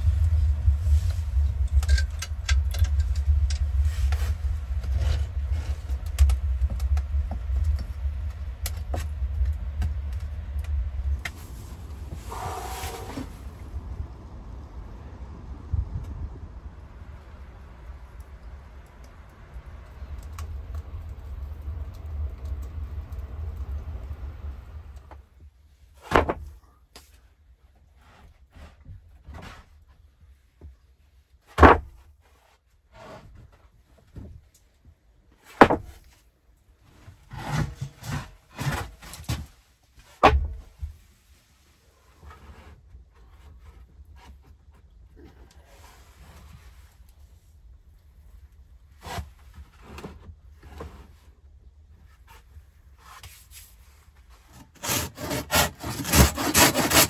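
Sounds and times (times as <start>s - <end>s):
storm wind rumble: 0.0s - 25.6s
wooden planks knocking: 26.1s - 26.5s, 35.6s - 36.0s.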